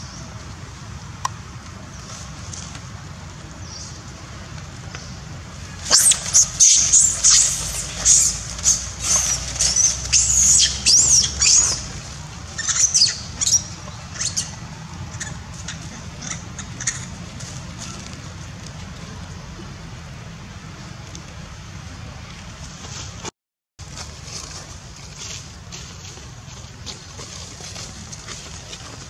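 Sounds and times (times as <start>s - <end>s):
monkey screaming: 5.8s - 11.9s, 12.6s - 14.5s, 15.1s - 17.1s.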